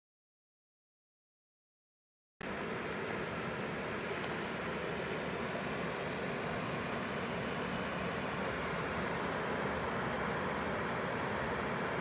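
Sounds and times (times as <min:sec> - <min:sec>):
stream water flowing: 0:02.4 - 0:12.0.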